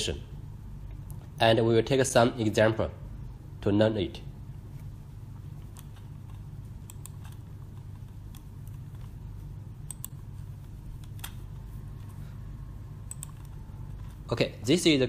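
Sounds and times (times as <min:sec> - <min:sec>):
low electrical hum: 0:00.0 - 0:15.0
computer mouse clicks: 0:05.6 - 0:09.2, 0:09.8 - 0:10.3, 0:10.9 - 0:12.1, 0:13.0 - 0:14.2.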